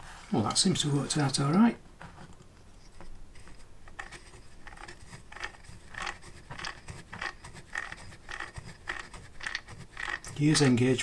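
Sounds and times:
metal gear parts scraping and clicking: 0:03.5 - 0:11.0.

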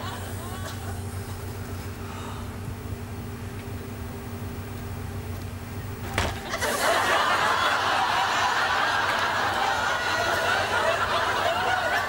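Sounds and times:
audience laughing: 0:00.0 - 0:01.6, 0:06.3 - 0:12.0.

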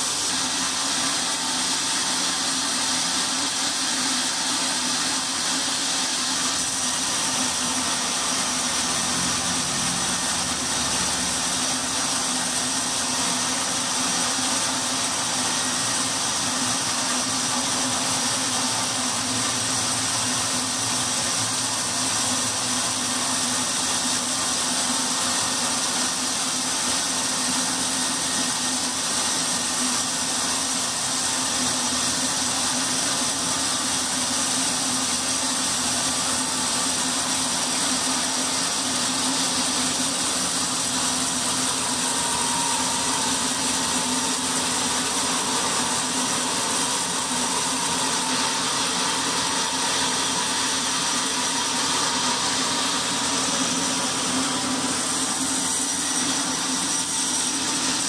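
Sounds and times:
band saw cutting timber: 0:00.0 - 0:58.0.

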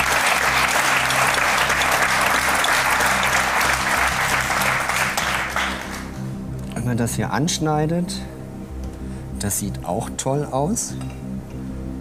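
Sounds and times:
audience applauding: 0:00.0 - 0:06.2
background music with low notes: 0:00.0 - 0:12.0.

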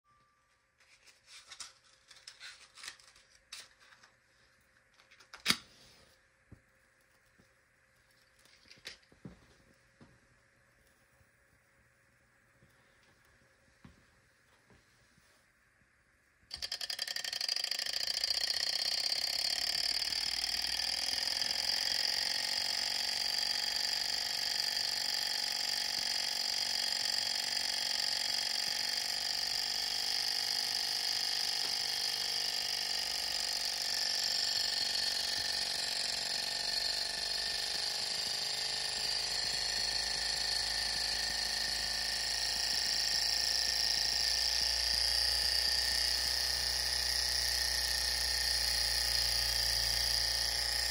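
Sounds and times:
small engine model whirring: 0:16.5 - 0:50.9.

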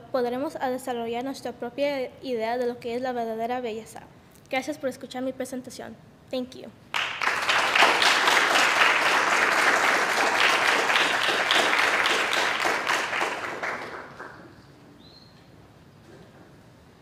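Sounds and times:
small audience applauding: 0:06.9 - 0:14.6.

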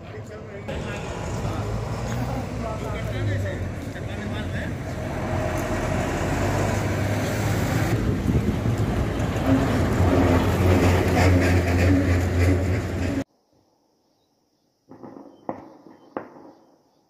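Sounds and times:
vehicle engine rumbling: 0:00.0 - 0:13.3.

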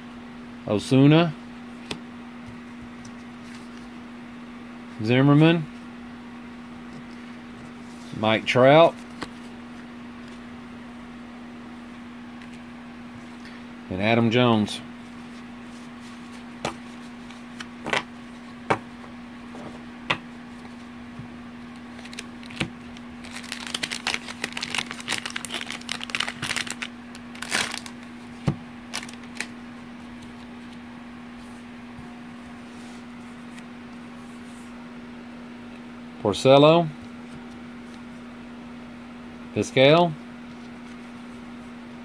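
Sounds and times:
plastic wrapper crinkling: 0:21.9 - 0:28.1, 0:28.9 - 0:29.6.

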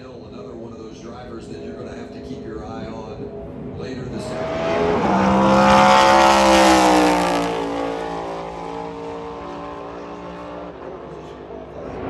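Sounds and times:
race car engine passing by: 0:02.7 - 0:12.0.

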